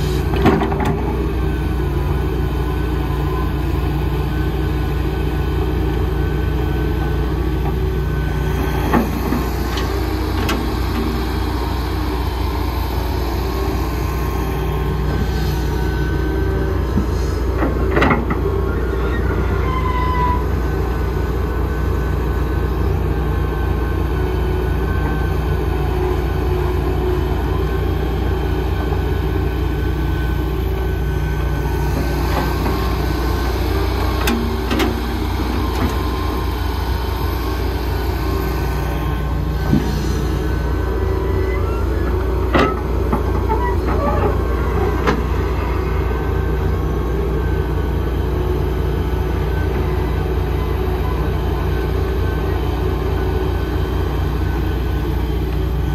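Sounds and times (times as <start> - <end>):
excavator diesel engine: 0.0 - 55.9.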